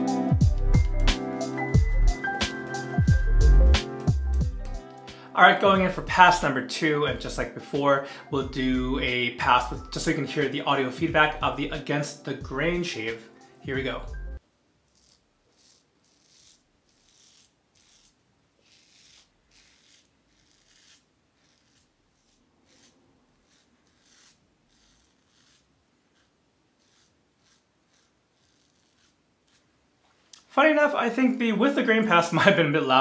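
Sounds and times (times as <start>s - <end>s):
razor scraping stubble: 1.8s - 5.1s, 14.9s - 29.7s.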